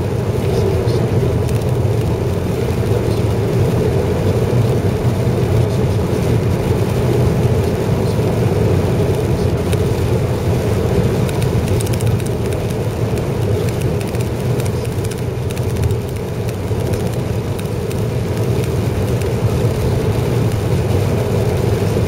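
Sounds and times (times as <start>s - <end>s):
car road noise in cabin: 0.0s - 22.0s
hiss of wet road: 0.0s - 22.0s.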